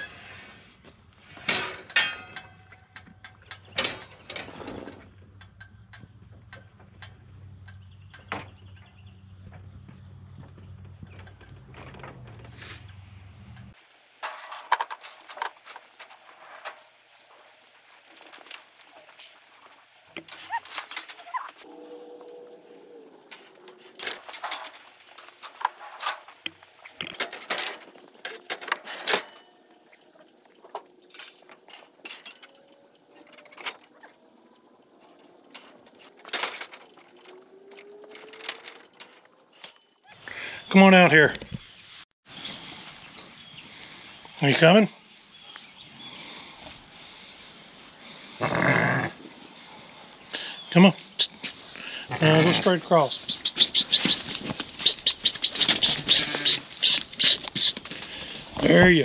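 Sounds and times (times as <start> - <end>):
metal chute clanking and rattling: 1.4 - 9.1, 10.6 - 22.0, 23.2 - 40.2.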